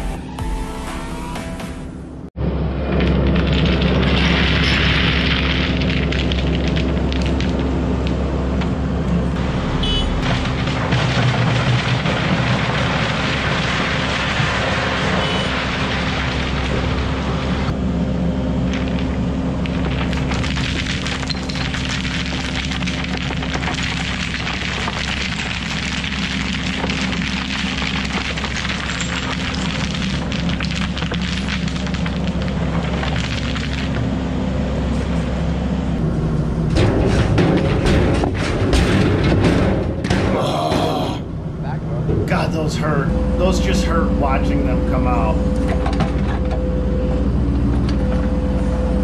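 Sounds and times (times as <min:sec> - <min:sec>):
diesel engines running: 0:02.1 - 0:49.0
rock pouring and clattering: 0:02.8 - 0:17.8, 0:18.6 - 0:35.4.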